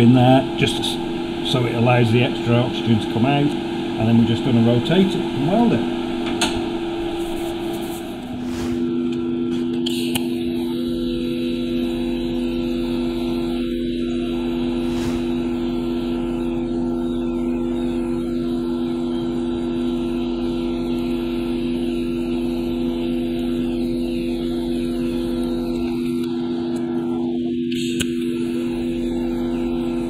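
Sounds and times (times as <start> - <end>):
welding arc buzz: 0.0 - 9.0
electrical hum: 0.0 - 30.0.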